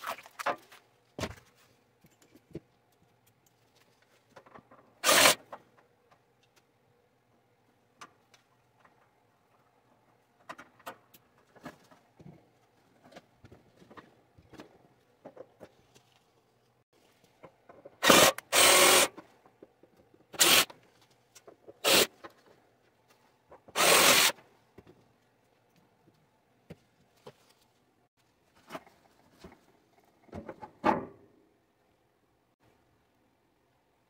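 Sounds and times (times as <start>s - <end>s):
power tool bursts: 18.0s - 19.1s, 20.4s - 20.7s, 21.8s - 22.1s, 23.8s - 24.4s.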